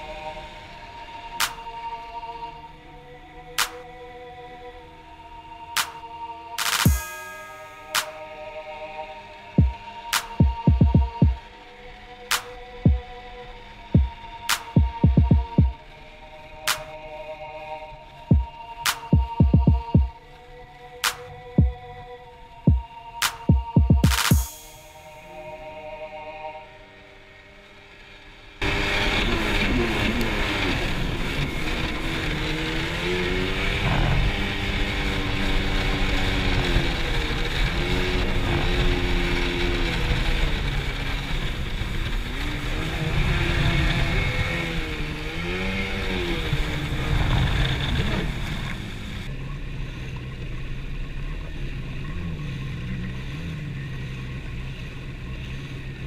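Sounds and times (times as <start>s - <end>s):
jet ski engine revving: 28.6s - 55.9s.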